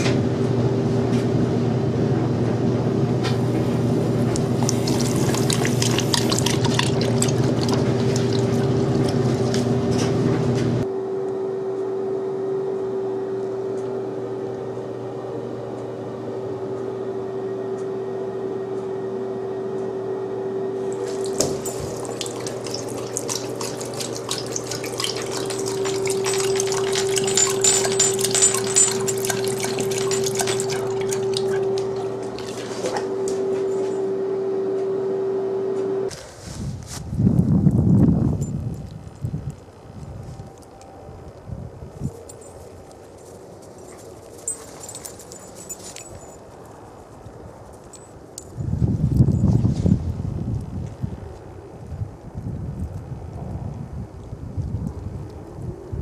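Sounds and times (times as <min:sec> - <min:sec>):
faucet running: 0:04.4 - 0:09.8, 0:20.9 - 0:32.8
dog lapping water: 0:04.4 - 0:10.0, 0:21.0 - 0:33.1.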